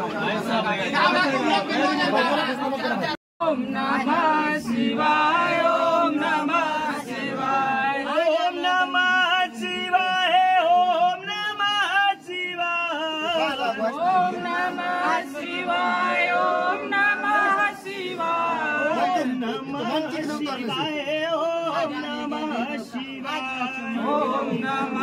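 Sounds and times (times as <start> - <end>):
men chanting a hymn: 3.4 - 25.0.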